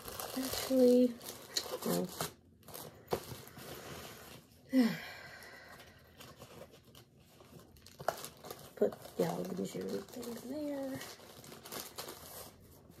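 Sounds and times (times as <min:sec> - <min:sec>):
plastic bag rustling: 0:00.0 - 0:04.6, 0:06.0 - 0:13.0
person sighing: 0:04.7 - 0:05.8.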